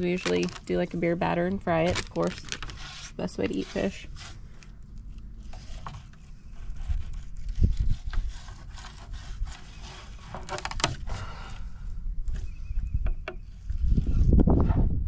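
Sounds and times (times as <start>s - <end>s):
knife scraping fish fillet: 2.7s - 4.4s
dull low thump: 14.3s - 15.0s.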